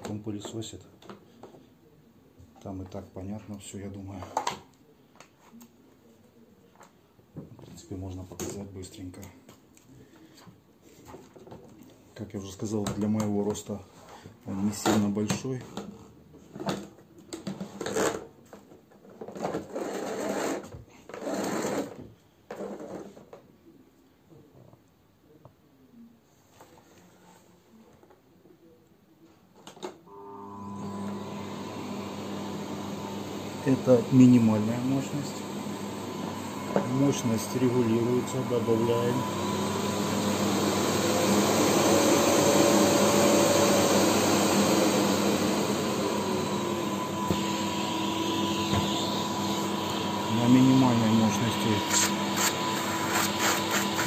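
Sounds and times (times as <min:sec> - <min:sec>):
vacuum cleaner click: 0:30.8 - 0:54.0
rough whirring scrapes: 0:51.2 - 0:54.0.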